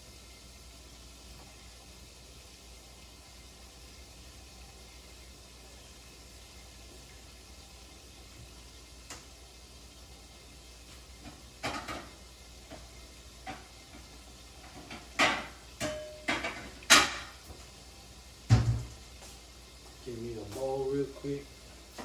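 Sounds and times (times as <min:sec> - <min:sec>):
dishes clattering: 0:11.2 - 0:17.4.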